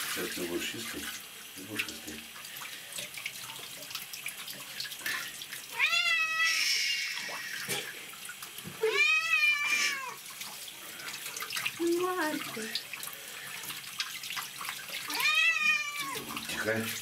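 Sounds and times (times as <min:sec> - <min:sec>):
cat meowing loudly: 0:05.7 - 0:07.5, 0:08.8 - 0:10.2, 0:15.1 - 0:16.4
shower spray hissing: 0:06.3 - 0:08.0, 0:08.7 - 0:12.8.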